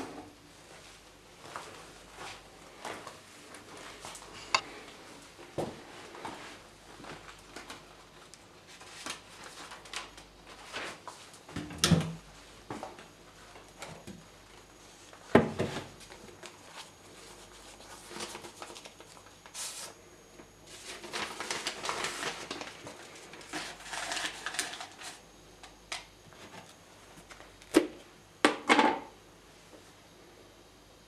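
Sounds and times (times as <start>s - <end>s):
rustling and scraping: 20.7s - 25.2s.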